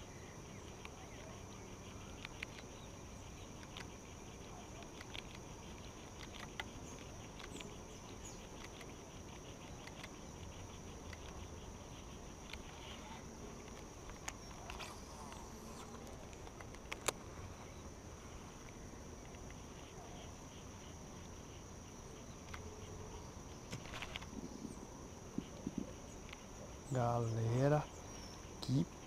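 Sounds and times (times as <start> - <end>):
insects droning: 0.0 - 29.0
sharp clicks: 2.2 - 2.7, 3.4 - 4.0, 4.7 - 7.8, 8.4 - 11.5, 12.4 - 13.0, 13.6 - 17.2.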